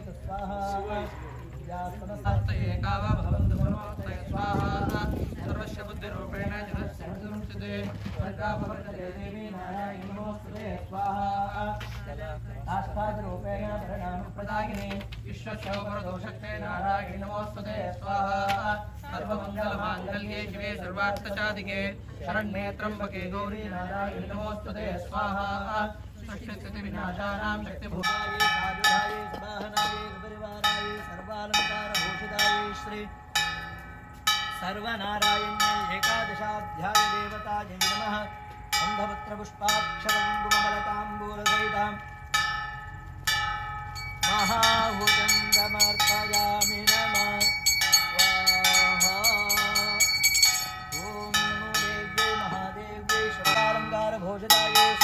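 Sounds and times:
wavering melody: 27.9 - 55.0
temple bells ringing: 28.0 - 55.0.

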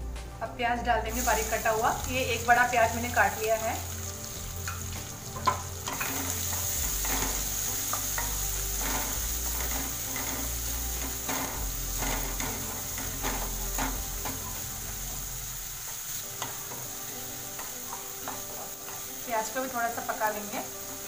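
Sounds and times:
onion sizzling in hot fat: 1.1 - 21.0
spatula scraping pan: 5.4 - 14.5.

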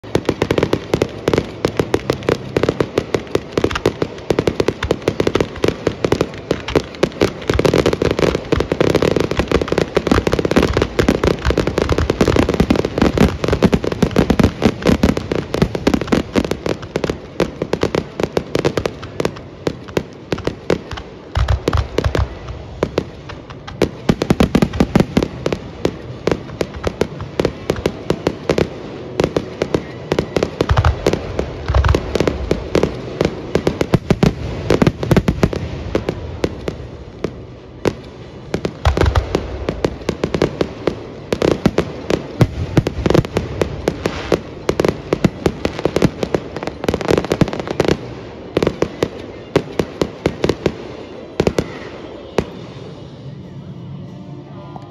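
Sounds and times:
fireworks bursting: 0.0 - 53.9.

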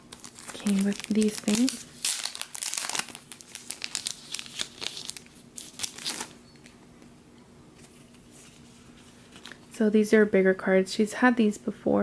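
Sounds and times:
paper envelope rustling: 0.1 - 6.4, 7.8 - 9.6.

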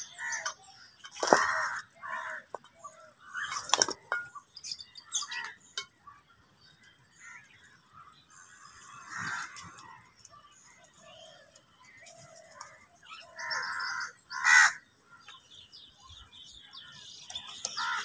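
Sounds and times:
crows calling: 0.0 - 4.4, 5.0 - 5.7, 7.1 - 10.2, 10.9 - 15.4, 16.7 - 18.0
beaks pecking metal bowl: 0.0 - 7.8, 17.0 - 18.0.

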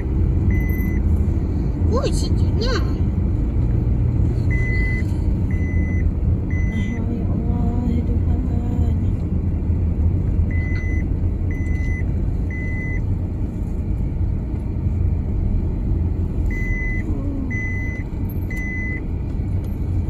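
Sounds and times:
engine and tyre rumble: 0.0 - 20.0
electronic warning beeps: 4.5 - 7.0, 10.5 - 13.0, 16.5 - 19.0.

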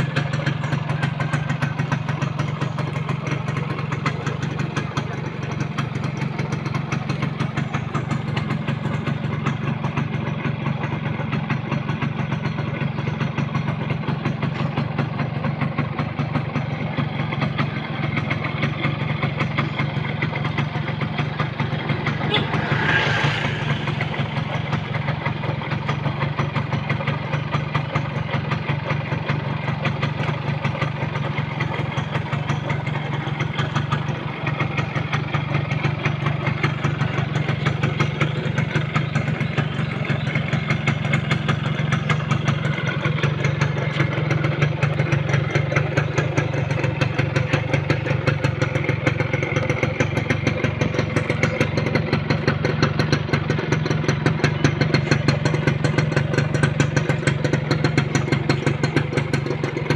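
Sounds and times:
two-stroke engine idling: 0.0 - 59.9.

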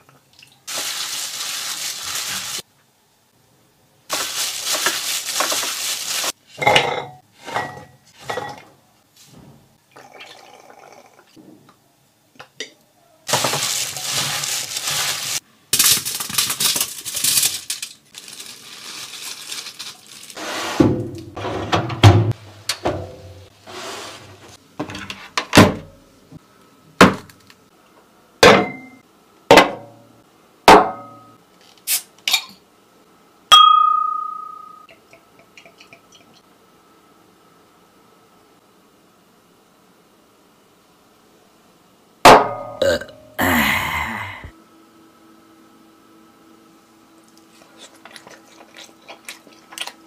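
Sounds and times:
glass and dishes clinking: 6.6 - 8.6, 33.5 - 35.0.

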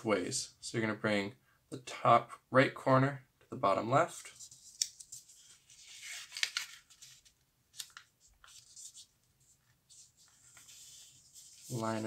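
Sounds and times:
paper rustling and scraping: 4.2 - 12.0.

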